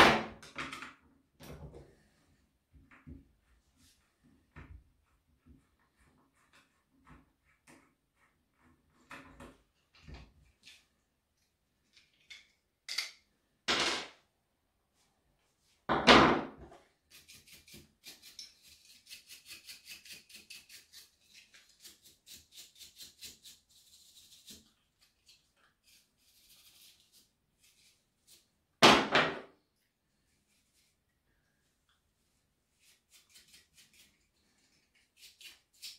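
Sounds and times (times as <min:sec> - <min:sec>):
brushes scrubbing plastic: 0:17.0 - 0:28.5, 0:32.1 - 0:35.9.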